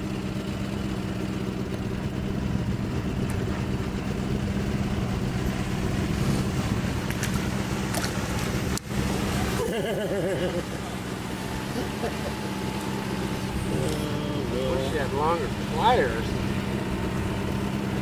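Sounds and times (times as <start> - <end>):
boat motor running: 0.0 - 18.0.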